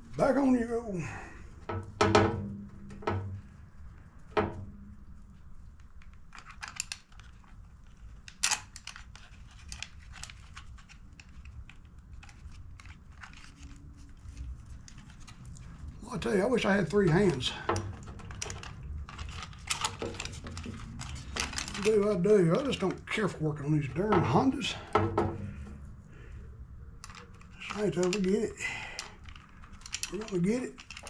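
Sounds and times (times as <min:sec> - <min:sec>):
hard plastic knocks and clicks: 0:24.1 - 0:25.7.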